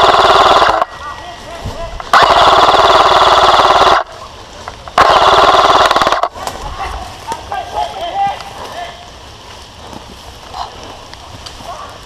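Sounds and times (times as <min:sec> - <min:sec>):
airsoft rifle automatic bursts: 0:00.0 - 0:01.0, 0:02.1 - 0:04.1, 0:05.0 - 0:06.4.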